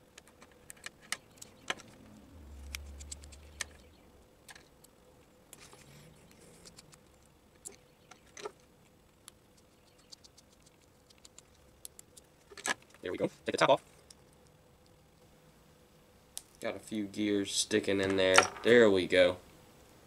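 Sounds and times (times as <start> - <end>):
low rumble: 1.8 - 4.3.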